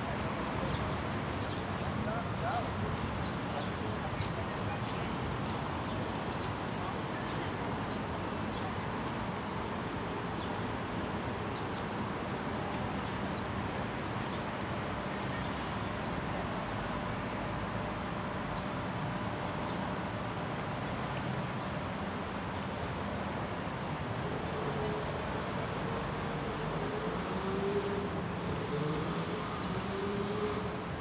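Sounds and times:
distant road traffic hiss: 0.0s - 31.0s.

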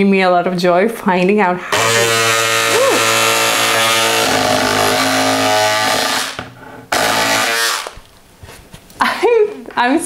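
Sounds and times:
electric scissors motor buzz: 1.7s - 8.0s.

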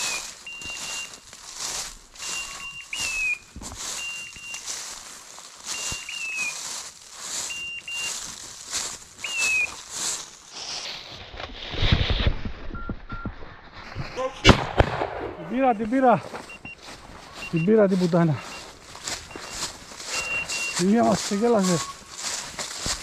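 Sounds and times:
footsteps through frosty grass: 0.0s - 12.6s, 13.6s - 23.0s
short high electronic beeps: 2.2s - 3.3s, 3.9s - 4.7s, 7.5s - 8.2s, 19.3s - 22.1s.

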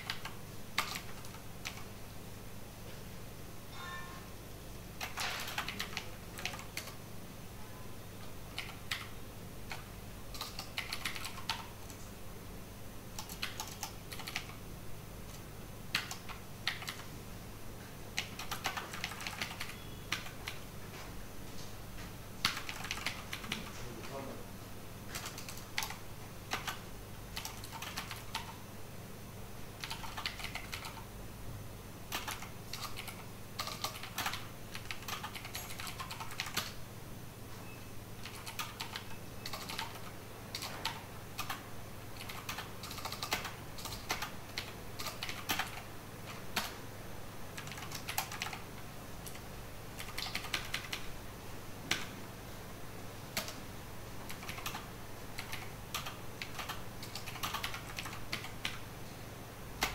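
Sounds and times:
typing on computer keyboard: 0.0s - 1.9s, 5.0s - 7.0s, 8.5s - 12.0s, 13.1s - 14.6s, 15.3s - 17.1s, 18.1s - 20.6s, 22.4s - 24.2s, 25.1s - 28.6s, 29.8s - 31.1s, 32.1s - 36.8s, 38.2s - 46.8s, 47.6s - 51.1s, 53.3s - 53.6s, 54.2s - 58.9s
faint low hum: 0.0s - 59.9s.

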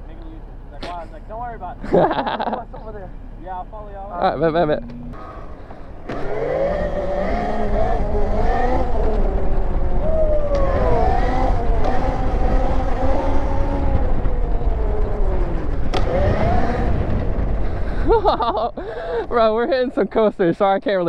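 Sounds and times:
wind rumble on microphone: 4.8s - 19.7s.

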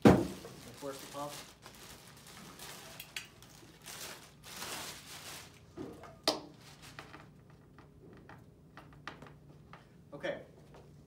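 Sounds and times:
plastic bag rustling: 0.0s - 7.2s.

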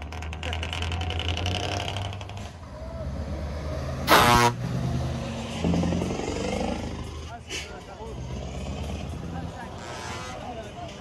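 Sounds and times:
truck engine rumbling: 0.0s - 11.0s
truck horn blast: 4.1s - 4.6s, 9.8s - 10.6s.

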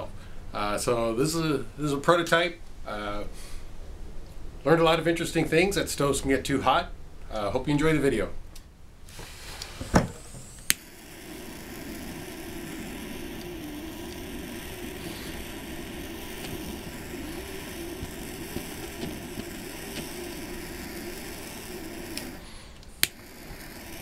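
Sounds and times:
lighter jet flame hissing: 9.0s - 24.0s
lighter igniter clicks: 10.3s - 24.0s.

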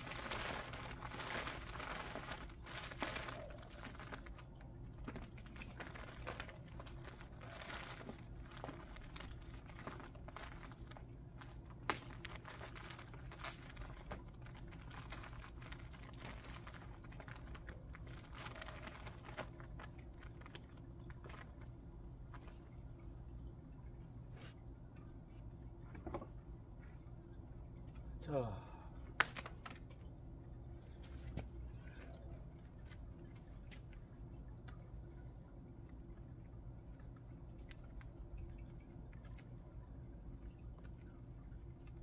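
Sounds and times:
crinkling rustling handling: 0.0s - 22.7s.

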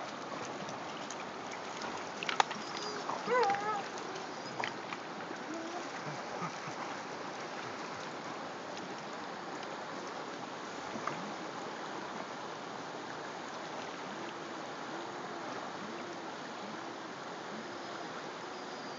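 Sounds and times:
dogs splashing in water: 0.0s - 8.3s
river water rushing: 0.0s - 18.9s.

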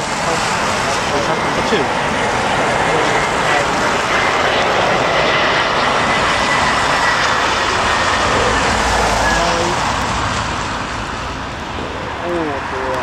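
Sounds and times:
jet engine rush: 0.0s - 13.0s.

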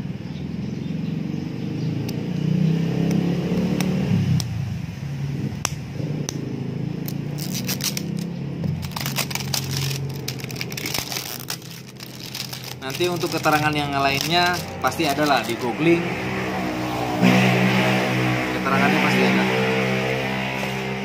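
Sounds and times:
plastic shrink wrap crinkling: 7.3s - 15.7s.

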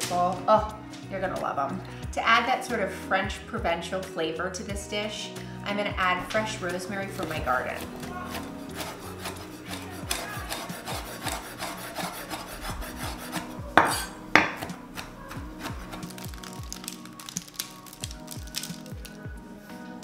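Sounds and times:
knife chopping on wooden board: 7.8s - 16.1s.

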